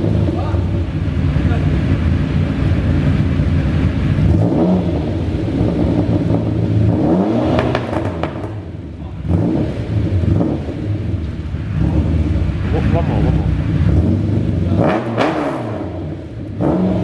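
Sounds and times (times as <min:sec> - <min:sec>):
car engine revving: 0:00.0 - 0:17.0
exhaust pops: 0:05.5 - 0:17.0.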